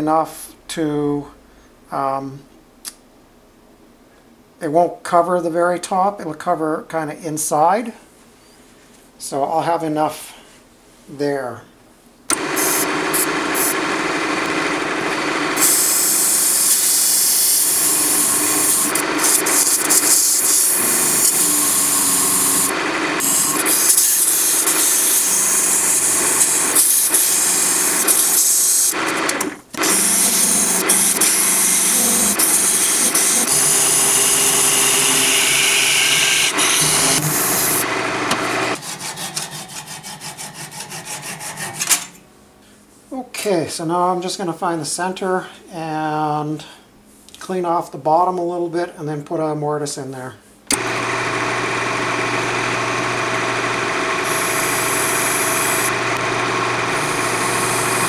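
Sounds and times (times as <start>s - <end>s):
wood lathe cutting: 12.3s - 41.8s, 50.7s - 58.0s
handsaw cutting wood: 12.3s - 42.0s, 50.7s - 58.0s.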